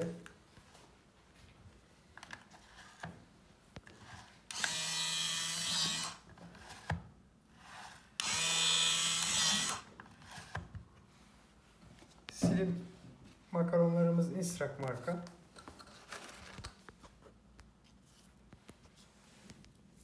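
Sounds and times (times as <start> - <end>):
small machine motor running: 4.5 - 6.2, 8.2 - 9.8.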